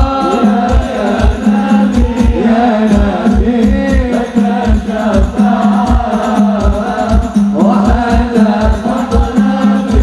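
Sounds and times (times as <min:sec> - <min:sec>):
drum beat: 0:00.0 - 0:10.0
man singing into a microphone: 0:00.0 - 0:10.0.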